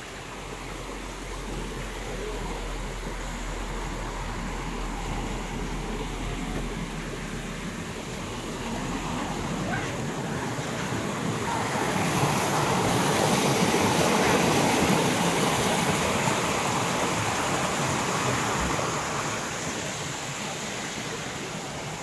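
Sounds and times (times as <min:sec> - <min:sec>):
stream rushing over rocks: 0:00.0 - 0:22.0.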